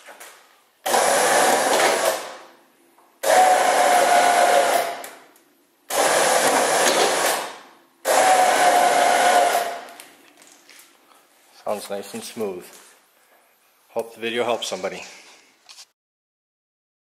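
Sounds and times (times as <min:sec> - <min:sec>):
electric winch motor whining: 0:00.9 - 0:02.4, 0:03.2 - 0:05.1, 0:05.9 - 0:10.0.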